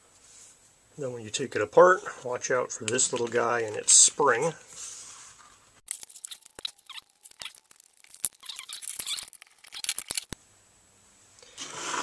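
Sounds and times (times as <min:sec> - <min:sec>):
plastic housing clicks and scrapes: 0:08.1 - 0:10.4.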